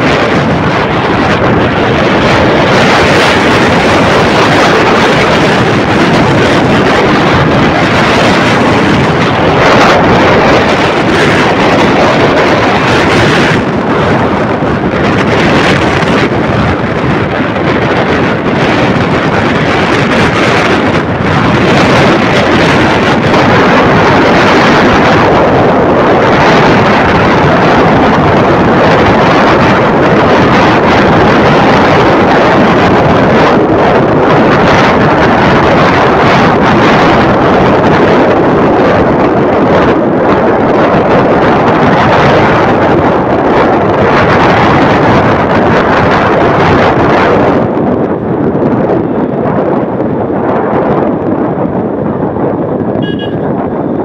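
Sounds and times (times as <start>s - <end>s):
motorcycle engine running: 0.0s - 40.1s, 41.0s - 54.0s
road noise: 0.0s - 54.0s
wind buffeting microphone: 0.0s - 54.0s.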